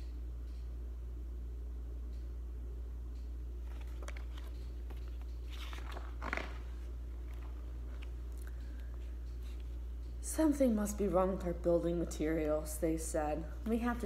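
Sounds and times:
steady low hum: 0.0 - 14.0
paper pages rustling: 3.6 - 8.2.

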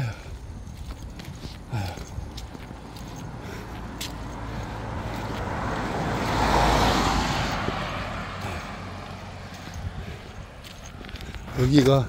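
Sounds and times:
car driving past: 2.7 - 11.5.

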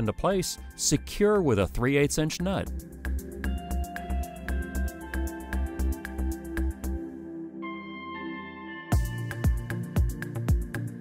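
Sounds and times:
electronic music beat: 2.6 - 7.2, 7.8 - 11.0.

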